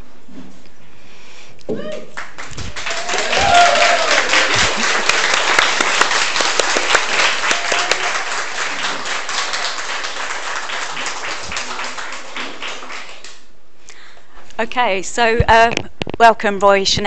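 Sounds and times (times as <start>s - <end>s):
audience applauding: 2.1s - 13.5s.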